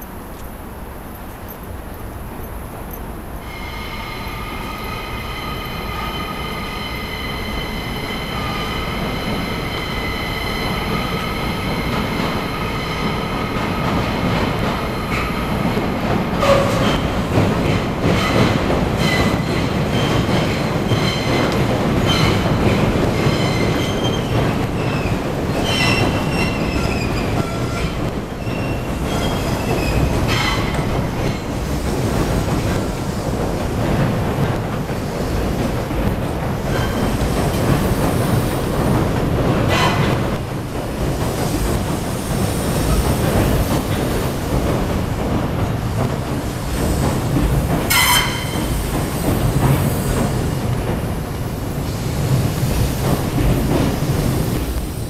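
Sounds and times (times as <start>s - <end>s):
train rumble: 0.0s - 55.0s
wheels clacking over rail joints: 4.2s - 54.9s
steel wheels squealing: 23.1s - 31.0s, 36.6s - 37.2s, 47.9s - 48.8s.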